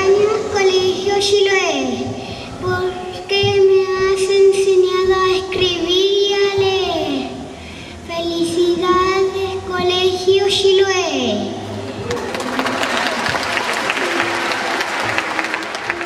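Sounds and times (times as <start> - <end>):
boy singing into a microphone: 0.0 - 7.4.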